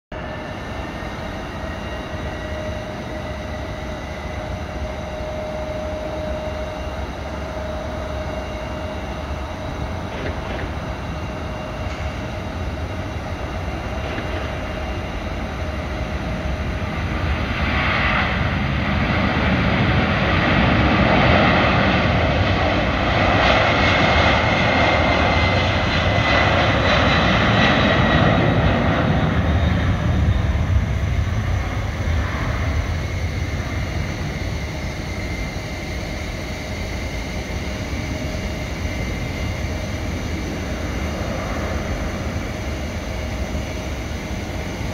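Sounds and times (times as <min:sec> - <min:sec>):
jet engines roaring on takeoff: 0:00.1 - 0:44.9.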